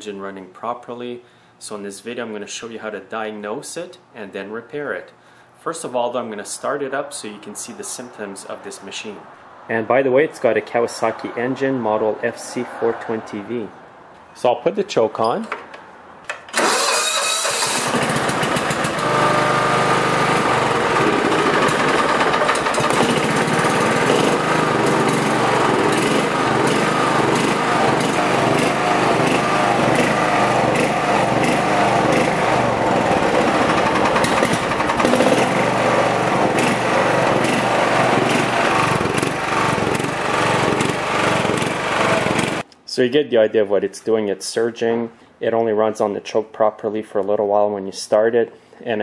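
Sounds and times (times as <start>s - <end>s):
lawn tractor engine surging: 16.5s - 42.6s.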